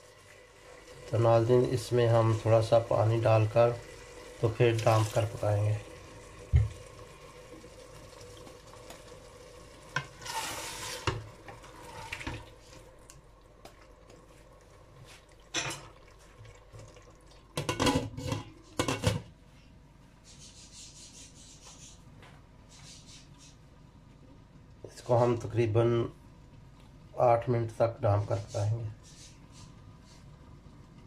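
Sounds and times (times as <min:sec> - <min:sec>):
water poured with hiss: 0:00.7 - 0:08.6, 0:10.0 - 0:12.8
wooden spoon scraping pot: 0:10.0 - 0:12.3.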